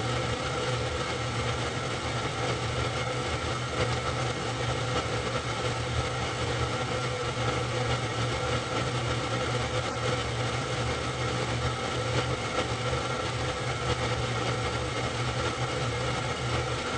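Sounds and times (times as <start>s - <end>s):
film projector whirring: 0.0s - 16.9s.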